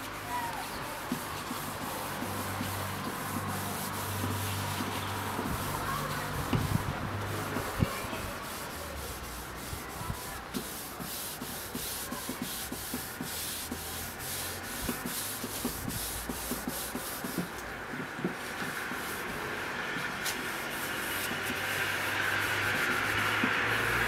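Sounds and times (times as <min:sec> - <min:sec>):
cloth scrubbing wooden board: 0:00.0 - 0:24.0.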